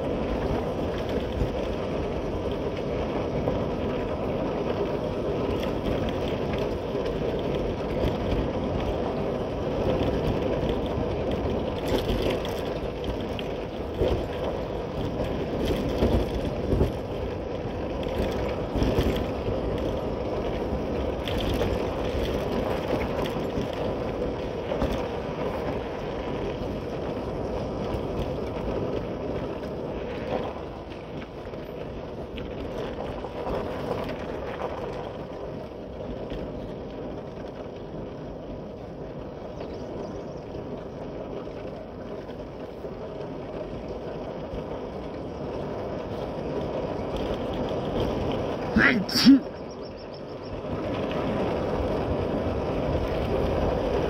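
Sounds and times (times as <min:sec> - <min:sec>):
motorcycle engine and road noise: 0:00.0 - 0:54.0.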